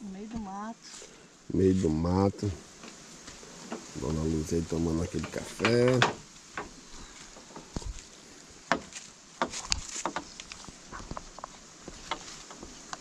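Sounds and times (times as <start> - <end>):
faint outdoor background: 0.0 - 13.0
light clicks and knocks: 5.1 - 6.8.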